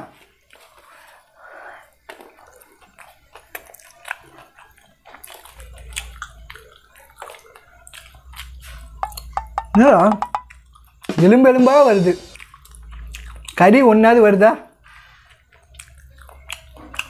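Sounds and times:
man chewing with mouth smacks: 0.2 - 9.7, 10.4 - 11.1, 12.4 - 13.7, 15.0 - 17.0.

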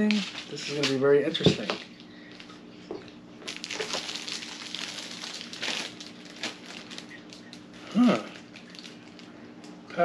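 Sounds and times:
packaging rustling: 3.4 - 9.4.

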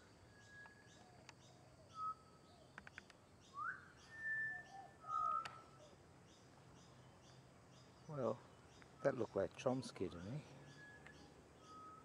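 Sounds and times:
faint high chirp: 0.2 - 12.0
bird whistling song: 0.3 - 8.1, 10.0 - 12.0.

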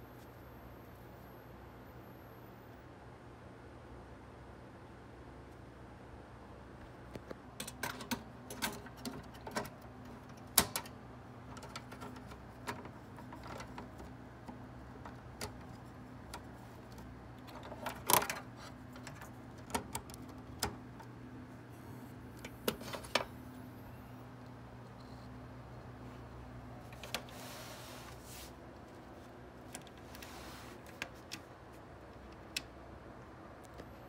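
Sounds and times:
faint steady hum: 0.0 - 34.0
clicks and knocks of hard drive handling: 7.6 - 21.1.

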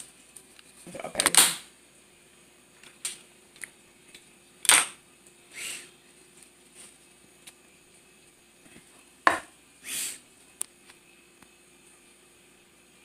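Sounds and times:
knocks on glass tabletop: 9.3 - 9.5.

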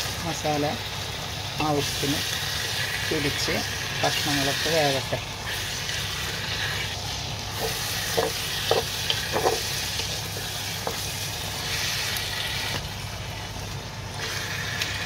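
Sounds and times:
chicken sizzling in a pot: 0.0 - 15.0.

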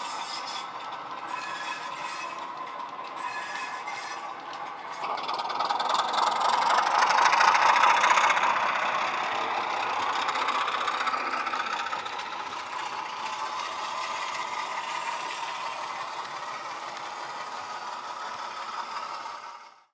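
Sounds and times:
model train rattling over track: 0.0 - 19.9
model diesel engine sound from speaker: 4.3 - 19.9.

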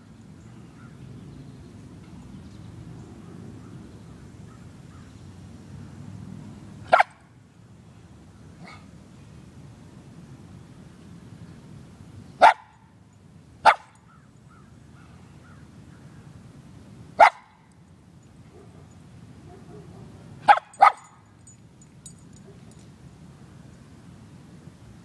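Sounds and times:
dog barking: 6.9 - 7.2, 12.4 - 12.7, 13.6 - 14.0, 17.2 - 17.6, 19.5 - 21.1.

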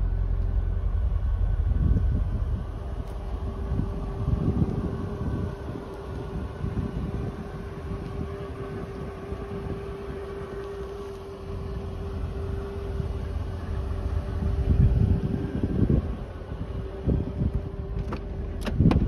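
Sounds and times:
steady mid-pitched hum: 0.0 - 18.9
wind buffeting microphone: 0.5 - 19.0.

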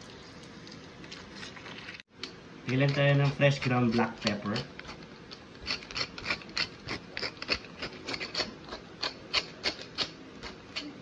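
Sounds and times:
pepper mill grinding: 2.7 - 11.0.

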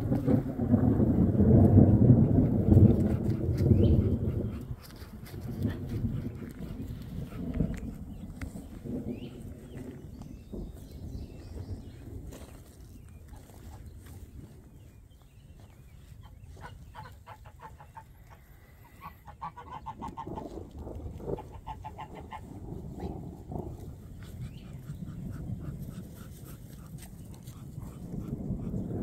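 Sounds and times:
geese honking: 16.2 - 20.6, 21.4 - 22.6.

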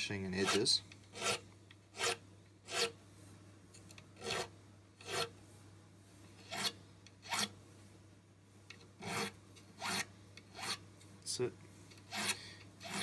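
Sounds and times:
file scraping metal frets: 0.4 - 3.0, 4.2 - 5.3, 6.4 - 7.5, 9.0 - 10.8, 12.1 - 13.0.

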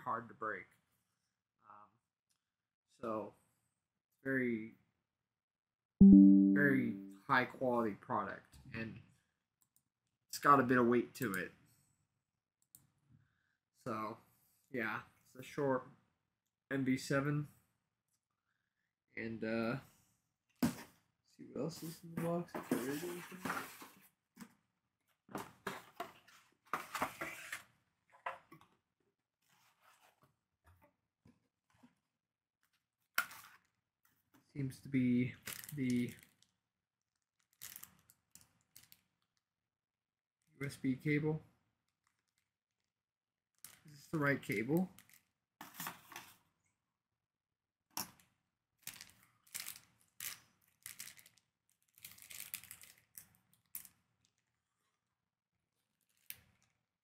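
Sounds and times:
packaging rustling and crinkling: 48.9 - 54.6.

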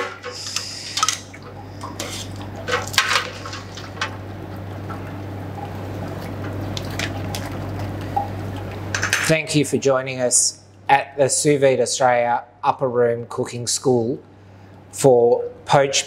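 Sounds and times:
water splashing and sloshing: 0.0 - 9.4
water dripping: 0.5 - 8.9.

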